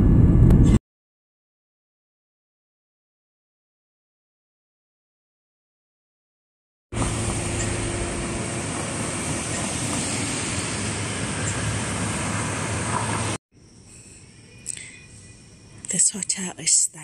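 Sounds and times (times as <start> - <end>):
vehicle engine hum: 0.0 - 0.8, 7.0 - 13.4
rushing hiss: 7.0 - 13.4.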